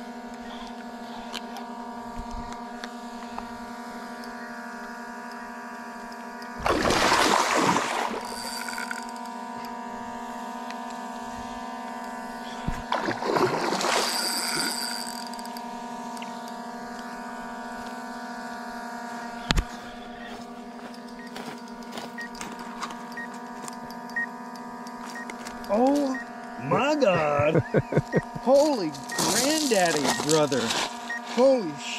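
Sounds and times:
steady multi-pitched hum: 0.0 - 31.9
fish splashing at water surface: 6.6 - 8.9, 12.8 - 15.1.

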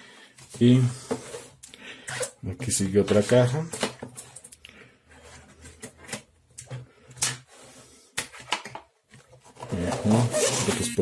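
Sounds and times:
cardboard box rustling: 9.4 - 11.0.

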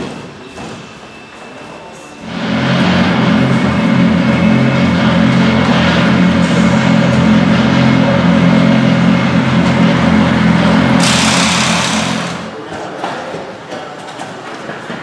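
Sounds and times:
car engine idling: 2.3 - 12.6.

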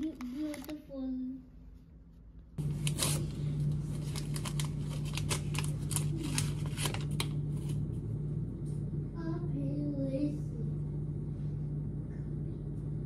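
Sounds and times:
steady low hum: 0.0 - 13.0
paper sachet tearing and rustling: 2.6 - 7.8.

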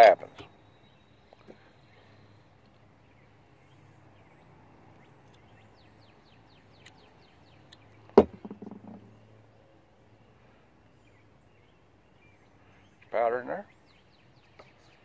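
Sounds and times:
bird chirping: 0.0 - 15.0
metal measure knocking on wood: 8.2 - 9.1.

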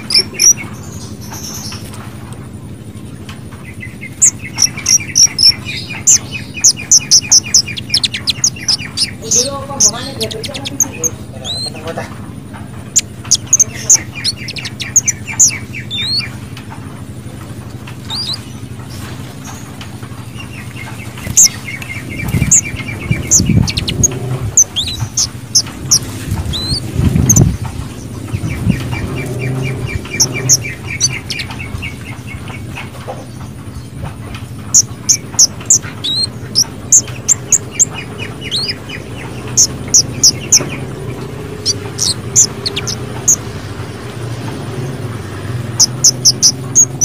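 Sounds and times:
bird singing with trills: 0.0 - 47.0.

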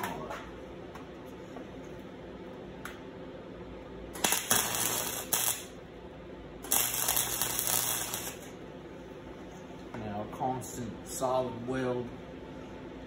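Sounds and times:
welder hum: 3.8 - 9.6
arc welding crackling: 4.1 - 5.9, 6.6 - 8.6.

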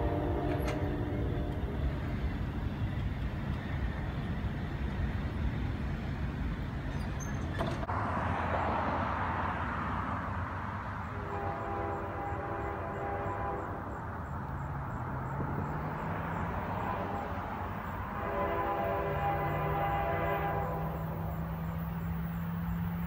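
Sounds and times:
train horn: 0.0 - 2.2, 11.0 - 14.0, 16.4 - 21.6.

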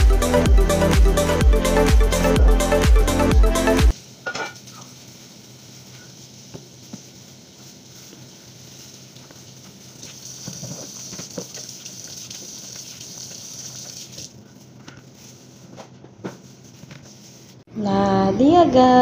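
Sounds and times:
tap running into sink: 10.0 - 13.0.

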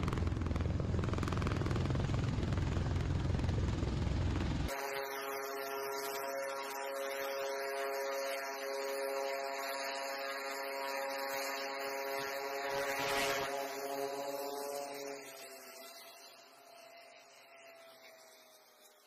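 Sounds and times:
aircraft buzzing drone: 0.0 - 19.0
rushing noise overhead: 12.4 - 14.3.

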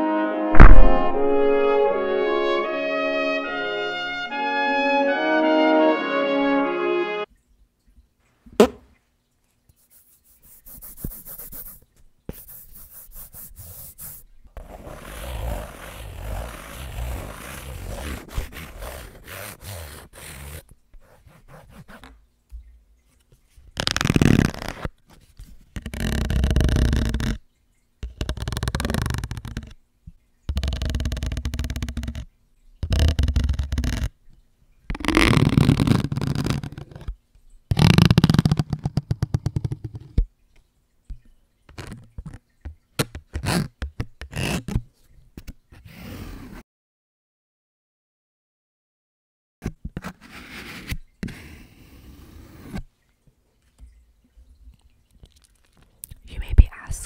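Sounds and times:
paddle scraping a microphone: 14.6 - 22.0.

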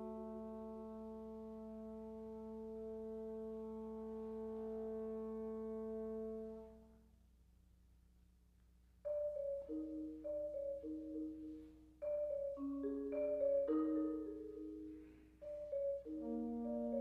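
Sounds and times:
marimba played with mallets: 9.1 - 17.0.

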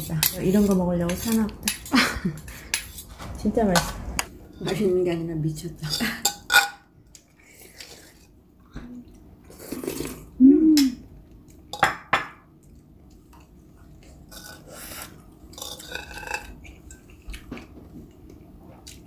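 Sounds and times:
person humming mm: 9.9 - 11.0.

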